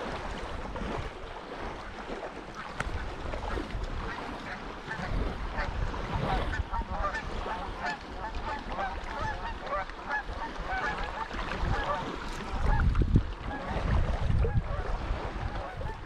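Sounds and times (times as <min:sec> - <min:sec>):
low wind: 0:00.0 - 0:16.0
water noise: 0:00.0 - 0:16.0
geese honking: 0:03.5 - 0:12.9, 0:15.5 - 0:16.0.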